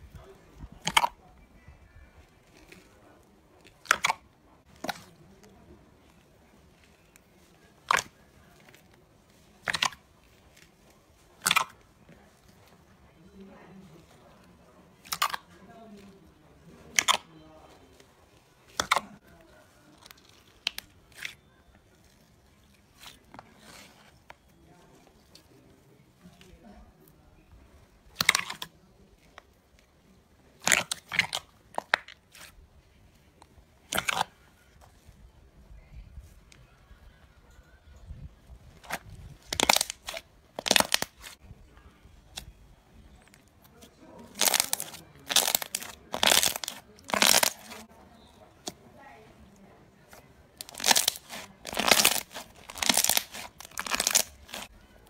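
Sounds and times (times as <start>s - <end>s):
slime crackling and popping: 0.7s - 1.2s, 2.2s - 6.2s, 6.8s - 10.8s, 11.4s - 12.8s, 15.0s - 15.6s, 16.8s - 17.3s, 18.7s - 19.2s, 19.9s - 24.1s, 28.1s - 29.9s, 30.6s - 32.6s, 33.8s - 34.4s, 38.8s - 41.4s, 43.2s - 48.8s, 50.1s - 54.8s
slime crackling pops: 3.7s - 5.2s, 9.6s - 10.0s, 11.4s - 11.8s, 16.9s - 17.3s, 28.1s - 28.7s, 30.6s - 32.2s, 33.9s - 34.3s, 38.9s - 41.4s, 44.3s - 47.8s, 50.6s - 54.7s.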